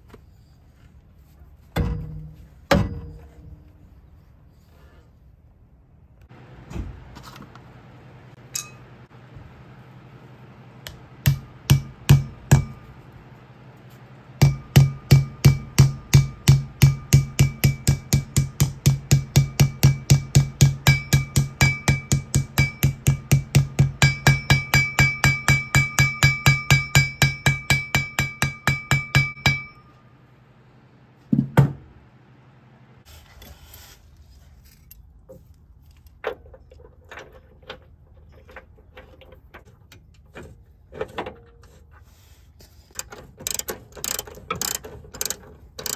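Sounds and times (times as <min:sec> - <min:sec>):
hammer tapping metal rotor: 0:14.4 - 0:29.9
metal rotor ringing: 0:43.4 - 0:45.9.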